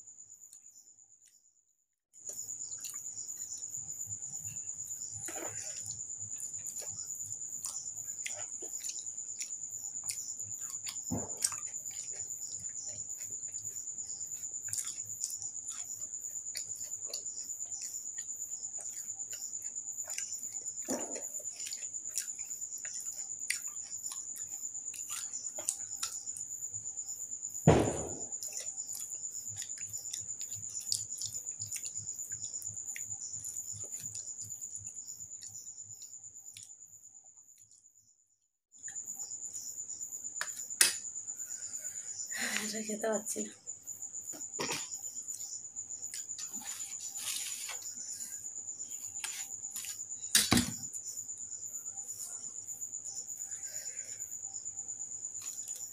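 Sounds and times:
cricket trill: 0.0 - 55.9
chewing: 2.3 - 3.5, 5.3 - 26.5, 28.4 - 33.1, 33.8 - 34.5, 55.4 - 55.9
dull thump: 11.1 - 11.5, 27.7 - 28.4
wet clicks of fingers mixing food: 28.4 - 33.2.

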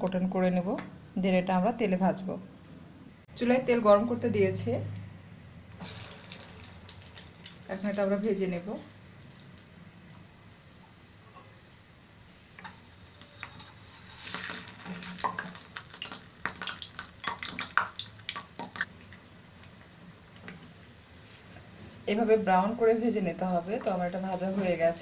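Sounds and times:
hot oil sizzling: 5.6 - 25.0
oil crackling and popping: 5.7 - 10.0, 12.6 - 20.6.

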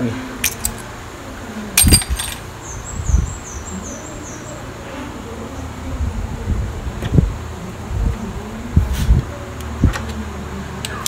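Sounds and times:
metal engine parts clinking: 0.4 - 1.0, 1.8 - 2.6.

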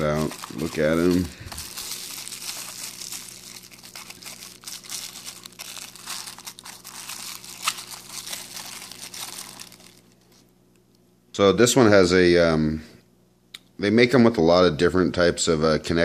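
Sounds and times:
bubble wrap crinkling: 0.0 - 10.5.

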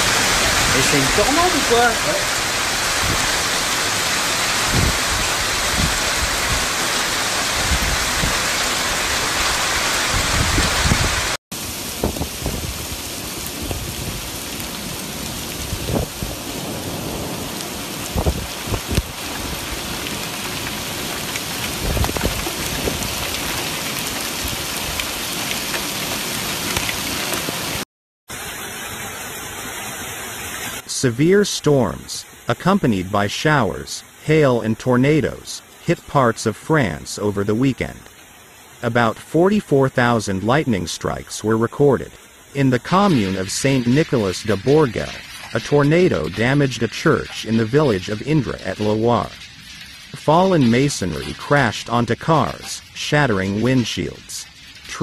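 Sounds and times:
heavy rain pouring: 0.0 - 55.0
rushing flood water: 0.0 - 55.0
wind rumbling on microphone: 2.7 - 3.4, 4.5 - 6.8, 7.4 - 8.6, 9.4 - 14.5, 15.2 - 20.6, 21.6 - 25.1.

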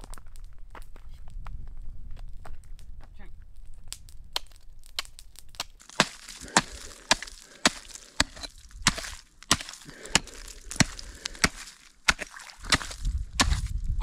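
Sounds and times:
ice crunching: 5.6 - 14.0
axe striking ice: 5.8 - 13.8.

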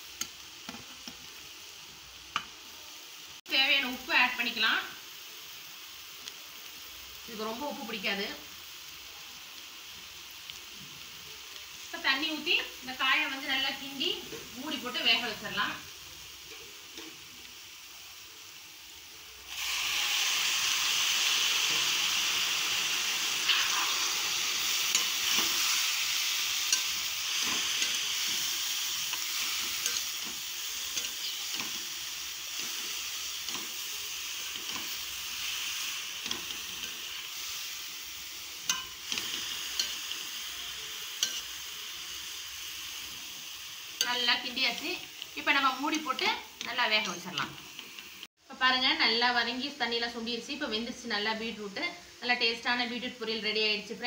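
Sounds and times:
vegetables sizzling in a pan: 0.0 - 54.0
metal spoon scraping a pan: 23.4 - 37.7, 38.6 - 41.7.

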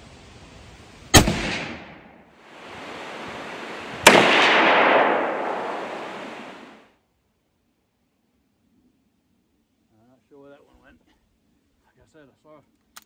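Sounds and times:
rifle shots: 1.2 - 6.8
rolling echo: 1.2 - 6.8.

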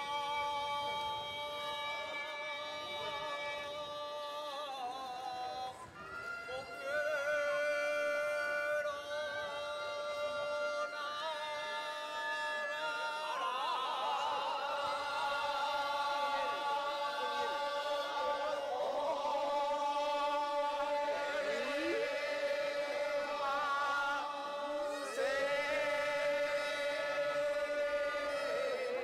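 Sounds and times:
choir-like music with sliding melody: 0.0 - 3.9, 13.3 - 29.0.

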